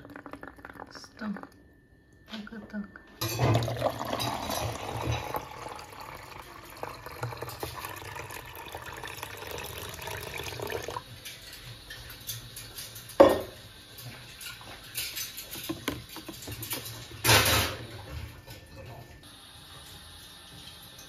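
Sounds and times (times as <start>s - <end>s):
juice pouring into plastic jug: 0.0s - 1.3s, 3.6s - 11.0s.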